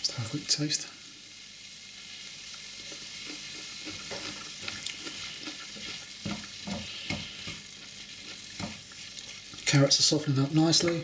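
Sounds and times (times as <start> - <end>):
vegetables sizzling in oil: 0.0 - 11.0
wooden spoon scraping a pan: 2.8 - 9.8.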